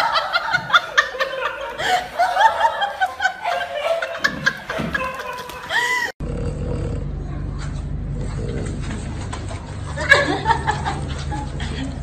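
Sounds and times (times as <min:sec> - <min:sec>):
high-pitched human laughter: 0:00.0 - 0:06.2.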